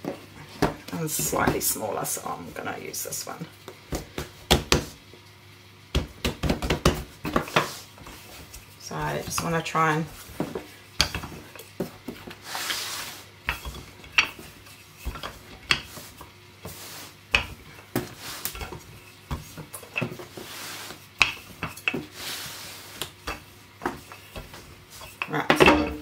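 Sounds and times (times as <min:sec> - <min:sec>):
rolling pin rubbing over dough: 0:06.6 - 0:25.5.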